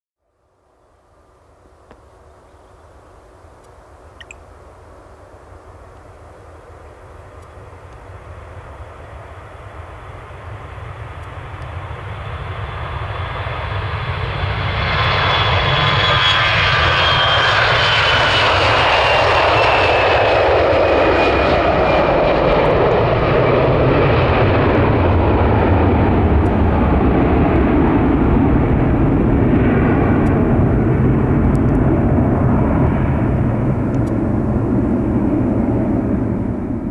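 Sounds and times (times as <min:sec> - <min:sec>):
jet engine whine falling in pitch: 0:06.8 - 0:36.9
jet engines roaring: 0:06.8 - 0:36.9.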